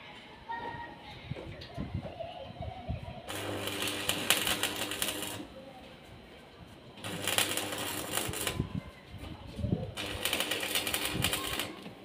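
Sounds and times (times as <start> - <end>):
welding arc crackling: 3.3 - 5.6, 7.0 - 8.6, 10.0 - 11.9.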